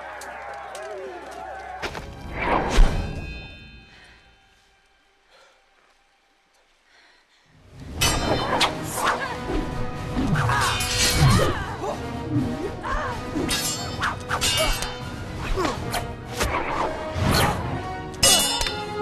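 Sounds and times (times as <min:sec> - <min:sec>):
dramatic music: 0:07.6 - 0:19.0
swords clashing: 0:08.0 - 0:09.4, 0:10.4 - 0:11.6, 0:13.4 - 0:16.6, 0:18.2 - 0:19.0.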